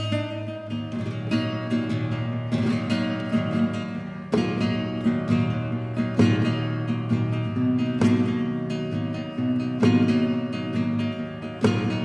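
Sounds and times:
flamenco guitar playing: 0.0s - 12.0s.

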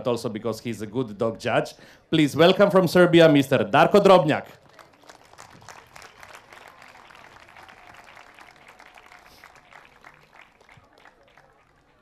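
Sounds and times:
people clapping: 4.4s - 12.0s.

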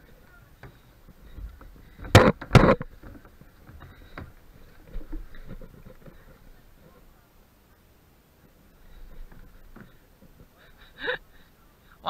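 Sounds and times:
thumps on hollow plastic slide: 0.6s - 6.3s.

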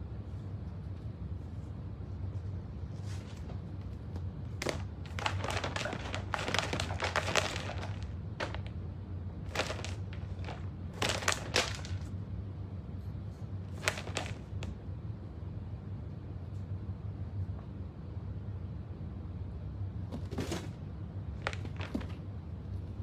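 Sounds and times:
rabbits crackling and rustling: 0.0s - 12.2s, 12.9s - 14.9s, 20.2s - 23.0s
steady low hum: 0.0s - 23.0s.

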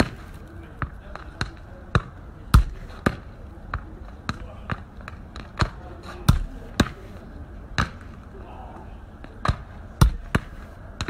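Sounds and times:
foot kicking football: 0.0s - 7.2s, 9.2s - 11.0s.

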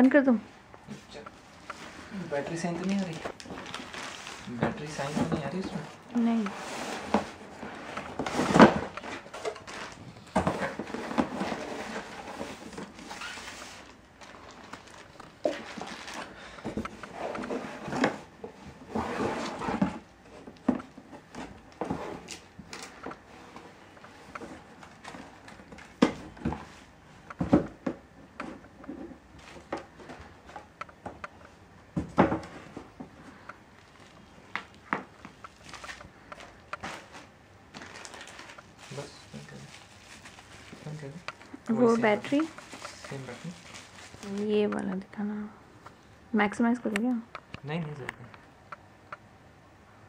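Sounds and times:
plastic packaging crinkling: 2.3s - 6.4s, 7.6s - 17.0s, 33.8s - 44.8s.

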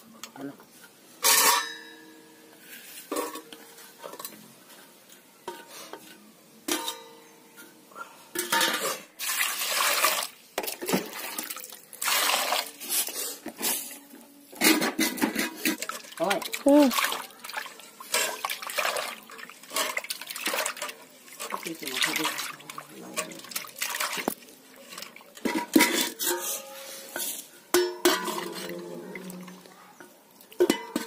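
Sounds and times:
water pouring into pot: 9.2s - 12.8s, 15.8s - 25.8s
pot ringing: 27.7s - 28.7s, 30.6s - 31.0s.

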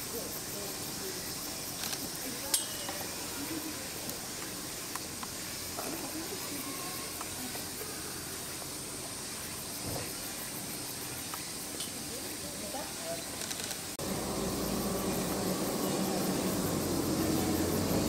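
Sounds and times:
faint indistinct voices: 0.0s - 10.0s
high-pitched outdoor hiss: 0.0s - 18.0s.

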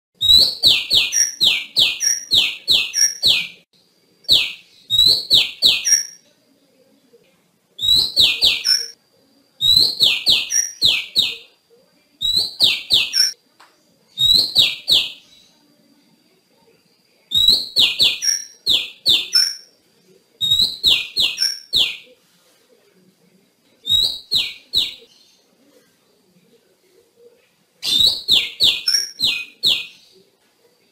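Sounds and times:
magpie-robin calling: 0.2s - 3.6s, 4.2s - 6.2s, 7.8s - 9.0s, 9.6s - 11.5s, 12.2s - 13.4s, 14.2s - 15.5s, 17.3s - 19.7s, 20.4s - 22.1s, 23.8s - 25.3s, 27.8s - 30.2s.

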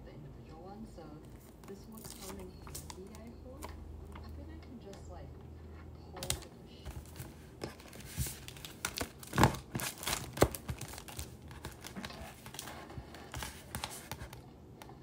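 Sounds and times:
paper and plastic sleeve rustling: 1.3s - 3.7s, 6.2s - 14.4s.

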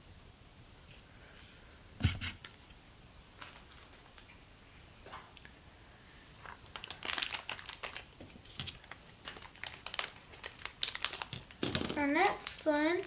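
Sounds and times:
plastic bag crinkling and tearing: 6.4s - 13.0s.

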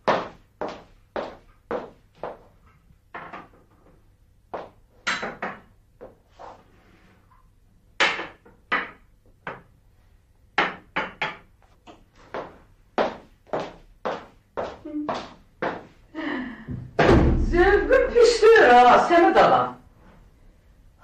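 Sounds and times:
hard-soled footsteps on floor: 0.0s - 2.8s, 4.5s - 4.9s, 11.6s - 16.1s.

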